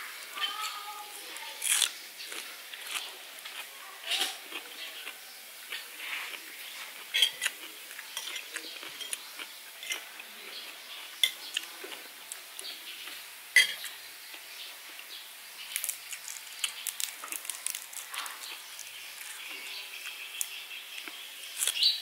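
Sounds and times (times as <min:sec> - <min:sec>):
cutlery clinking on plates: 0:07.1 - 0:09.2, 0:09.8 - 0:10.1, 0:13.6 - 0:13.9.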